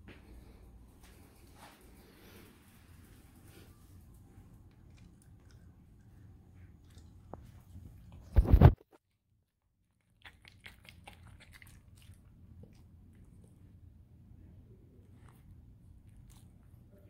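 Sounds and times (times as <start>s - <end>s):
dog chewing and lip smacking: 4.5s - 8.3s, 9.9s - 13.9s, 15.0s - 17.0s.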